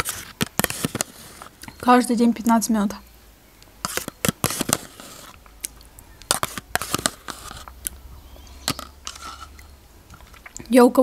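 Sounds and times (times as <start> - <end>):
spoon scraping plastic cup: 0.0 - 1.5, 3.8 - 5.4, 6.3 - 7.8, 8.6 - 10.5
wet mouth clicks: 5.6 - 6.0.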